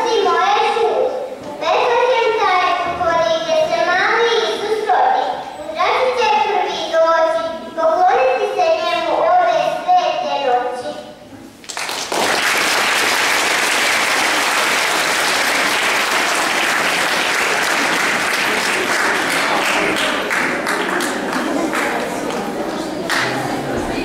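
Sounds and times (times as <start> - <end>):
audience applauding: 11.6 - 23.8.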